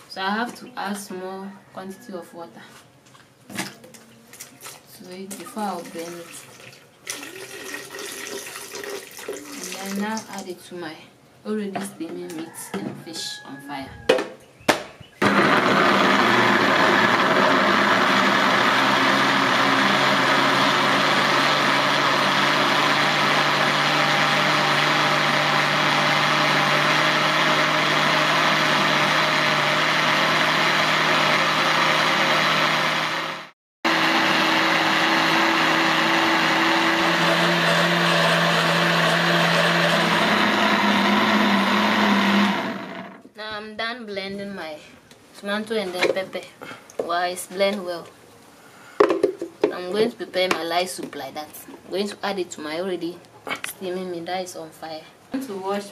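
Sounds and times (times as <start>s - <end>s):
blender running: 7.1s - 10.1s, 15.2s - 43.3s.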